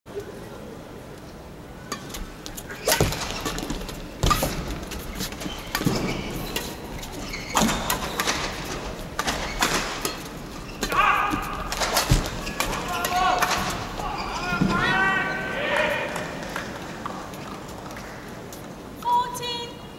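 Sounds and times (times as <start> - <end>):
badminton rackets hitting shuttlecock: 1.9 - 14.2.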